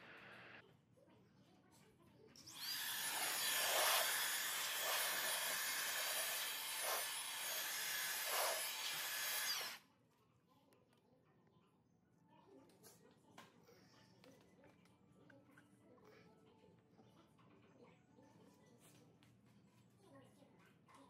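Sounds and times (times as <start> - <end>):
cordless blower whining: 2.5 - 9.8.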